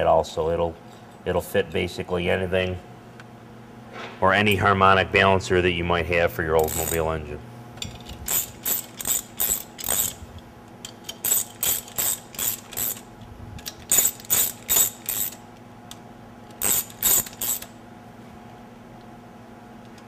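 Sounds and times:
hand ratchet clicking: 6.6s - 7.0s, 7.8s - 10.2s, 10.8s - 15.4s, 16.5s - 17.7s.

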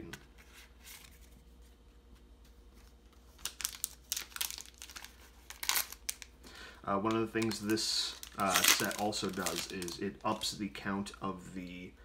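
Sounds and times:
wrapper crinkling and tearing: 3.3s - 6.3s, 7.1s - 10.6s.

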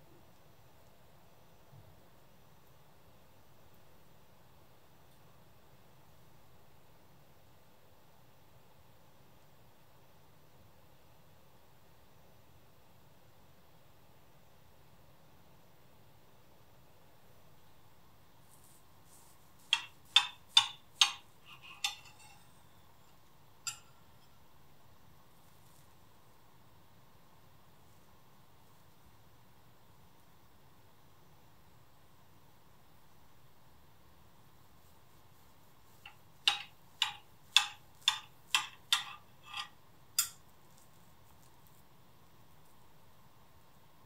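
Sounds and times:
cutlery clinking on plate: 19.7s - 24.4s, 36.0s - 40.4s.

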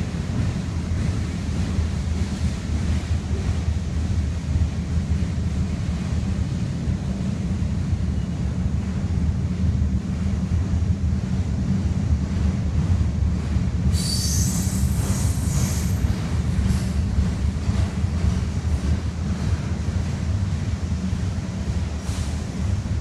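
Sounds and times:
freight train cars rumbling: 0.0s - 23.0s
high-pitched wheel squeal: 14.0s - 16.0s.

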